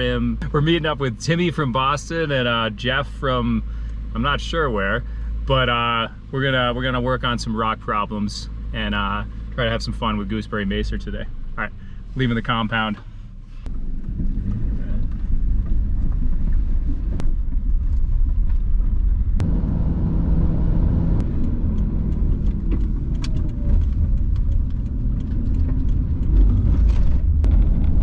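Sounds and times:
car cabin road rumble: 0.0s - 28.0s
light ticks: 21.2s - 27.4s.

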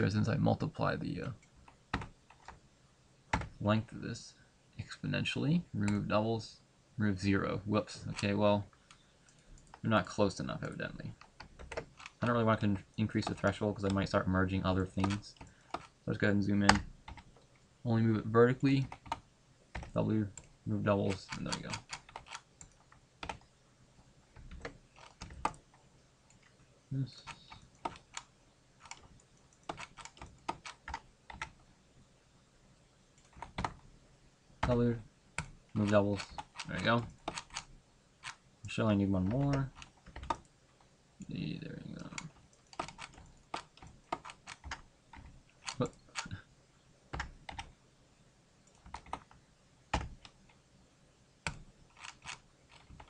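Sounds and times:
keyboard keys clicking: 14.9s - 15.9s, 27.2s - 31.6s, 39.2s - 40.5s, 42.0s - 46.4s, 48.7s - 50.4s.

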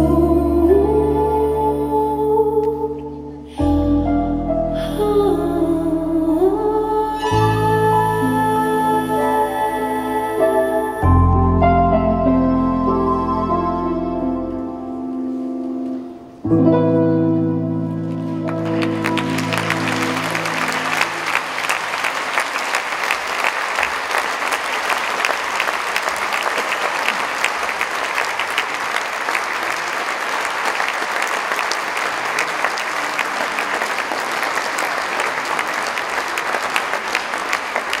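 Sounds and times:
audience applauding: 18.0s - 38.0s.

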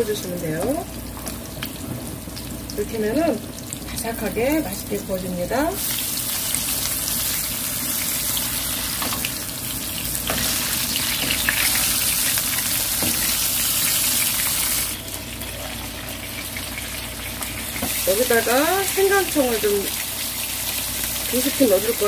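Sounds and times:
fish sizzling in oil: 0.0s - 22.0s.

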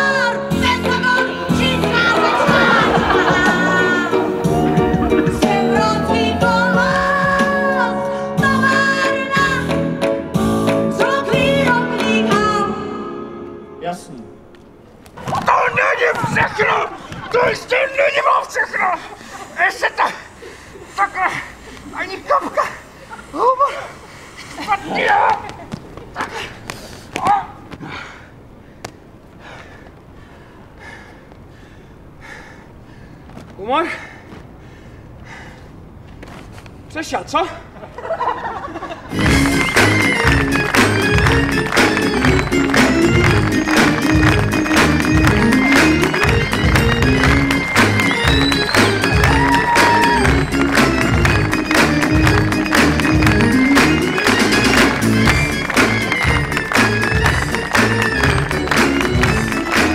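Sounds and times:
background music with pulsing bass: 0.5s - 11.9s, 39.1s - 59.9s
woman laughing: 2.0s - 5.5s.

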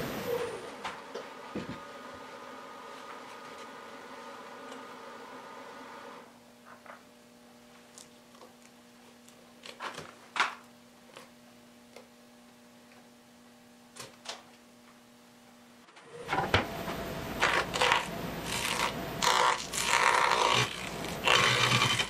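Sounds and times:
faint steady hum: 0.0s - 22.0s
louder hum: 16.2s - 22.0s.

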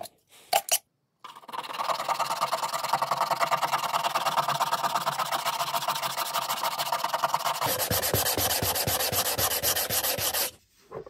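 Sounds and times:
sandpaper rubbing on plastic: 4.4s - 10.6s.

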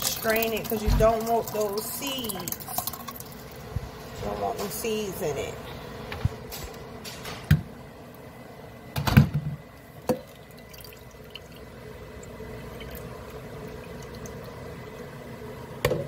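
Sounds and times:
puree dripping through sifter: 0.0s - 4.2s, 9.7s - 15.8s.

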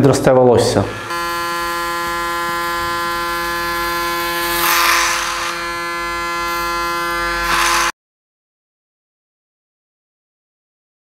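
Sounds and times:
electric hair clipper buzzing: 0.6s - 8.0s
clipper blades rasping through hair: 1.3s - 7.9s.

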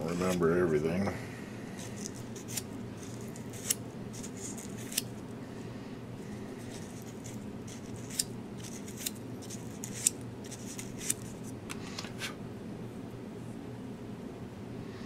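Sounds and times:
steady low hum: 0.0s - 15.0s
hand tool clicking and snipping wire: 1.8s - 5.1s, 6.7s - 11.3s.

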